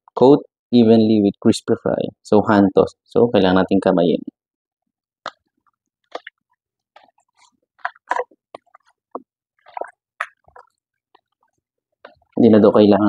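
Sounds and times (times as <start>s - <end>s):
raw chicken squishing in breading: 5.3s - 12.4s.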